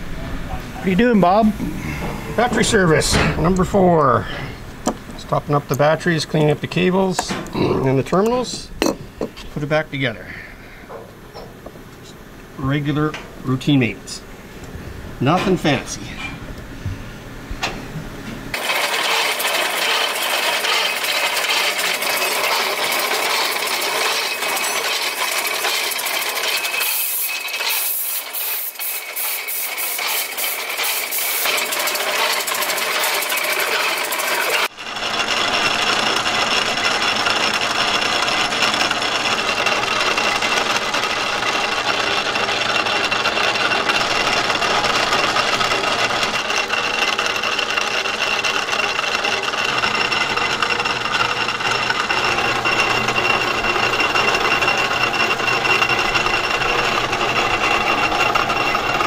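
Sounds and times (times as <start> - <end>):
machinery running with high whine: 0.0 - 59.0
machine rapid clicking: 18.5 - 59.0.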